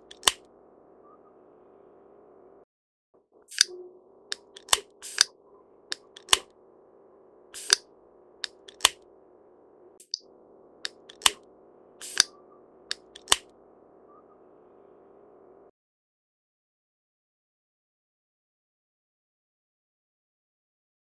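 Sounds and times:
faint steady hum: 0:00.0 - 0:02.6, 0:03.2 - 0:15.7.

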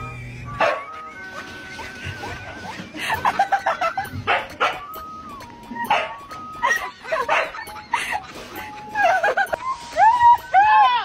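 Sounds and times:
background music: 0:00.0 - 0:11.0
dog yipping and barking: 0:00.6 - 0:00.9, 0:04.3 - 0:04.9, 0:05.8 - 0:07.8.

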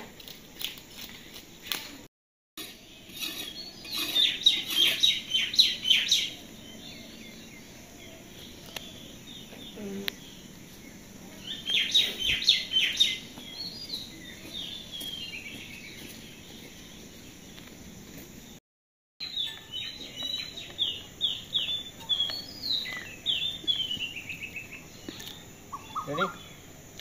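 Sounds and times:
small birds chirping: 0:02.6 - 0:18.6, 0:19.2 - 0:27.0.

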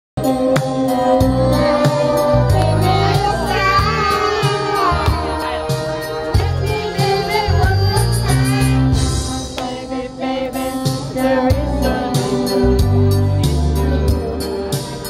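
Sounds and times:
girl singing into a microphone: 0:00.2 - 0:08.9
karaoke music with beat: 0:00.2 - 0:15.0.

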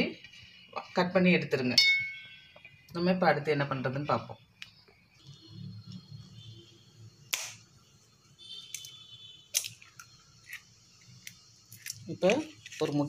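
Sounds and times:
egg cracking: 0:09.5 - 0:13.0.

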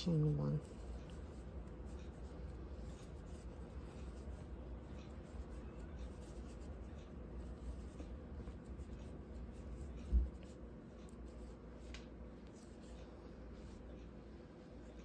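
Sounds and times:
steady low hum: 0:00.0 - 0:15.0
yarn rubbing on crochet hook: 0:00.2 - 0:11.9.

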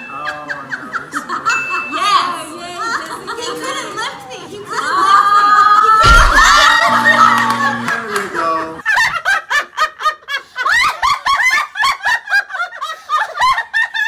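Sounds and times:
women cackling with laughter: 0:04.7 - 0:07.9, 0:08.8 - 0:14.0
short steady pitched tone: 0:06.8 - 0:07.9.

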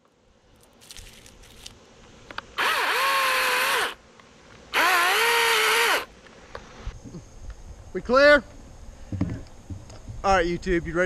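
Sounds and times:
electric chainsaw revving: 0:02.6 - 0:04.0, 0:04.7 - 0:06.1.

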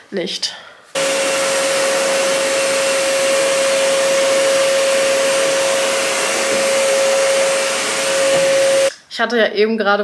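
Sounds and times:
vacuum cleaner running: 0:01.0 - 0:08.9.

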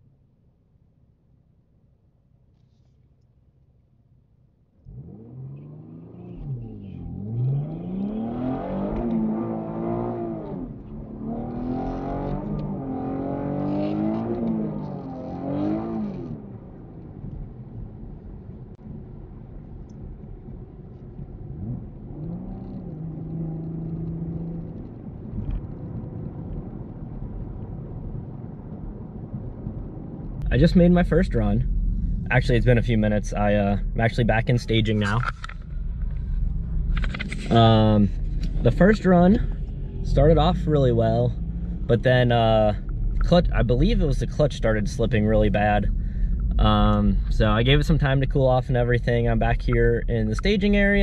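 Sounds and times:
car engine revving: 0:04.8 - 0:18.6, 0:20.2 - 0:51.0.

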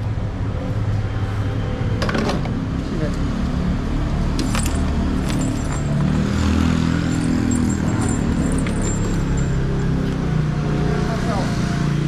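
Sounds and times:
vehicle engine running: 0:04.4 - 0:10.7
faint light clinks: 0:07.0 - 0:10.0.

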